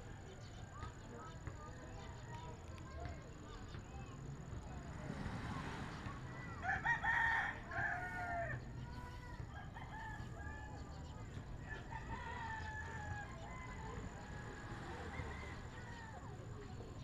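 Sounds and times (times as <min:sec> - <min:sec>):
rooster crowing: 0:06.6 - 0:08.6.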